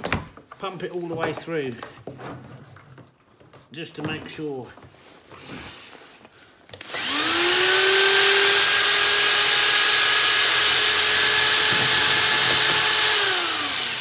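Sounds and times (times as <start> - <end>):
cordless drill whining: 6.7 - 14.0.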